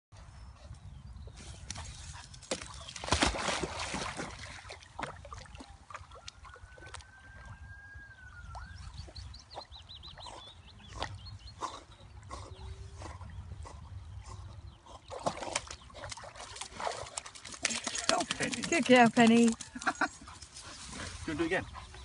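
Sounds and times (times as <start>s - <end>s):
dog splashing into pond: 1.6s - 7.4s, 15.1s - 19.9s
water sloshing: 2.4s - 7.2s, 15.1s - 21.3s.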